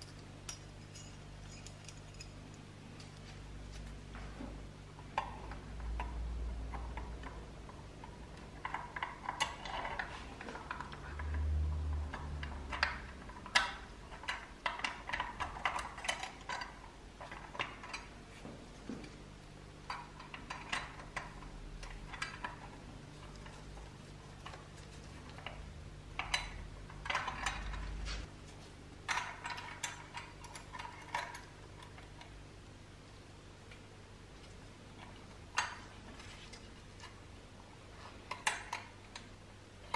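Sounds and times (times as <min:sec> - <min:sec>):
screwdriver and metal parts clicking: 0:00.0 - 0:02.4
low steady hum: 0:00.0 - 0:39.9.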